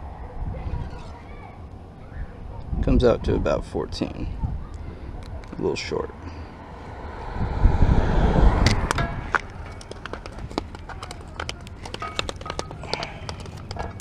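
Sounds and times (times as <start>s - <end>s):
low rumble on microphone: 6.5s - 10.9s
footsteps on gritty concrete: 8.8s - 14.0s.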